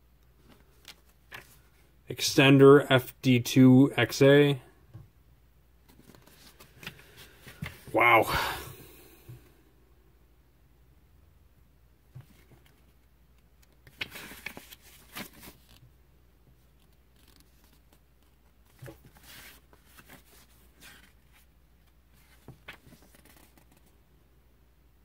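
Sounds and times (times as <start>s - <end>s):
booklet pages turning: 0.4s - 1.8s, 5.9s - 8.0s, 13.6s - 15.9s, 16.6s - 23.9s.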